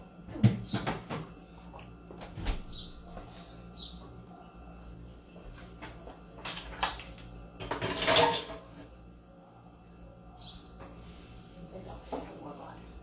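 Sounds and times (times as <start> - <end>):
dishes and utensils clattering: 5.8 - 9.0.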